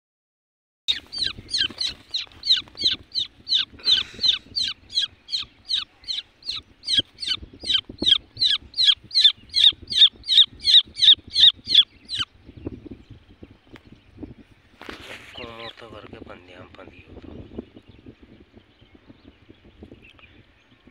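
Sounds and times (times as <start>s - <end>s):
chick peeping: 0.9s - 12.3s.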